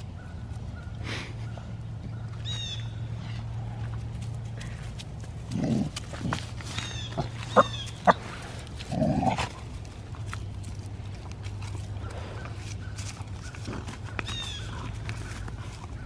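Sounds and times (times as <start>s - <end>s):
steady low hum: 0.0s - 16.0s
dogs growling: 5.3s - 10.2s.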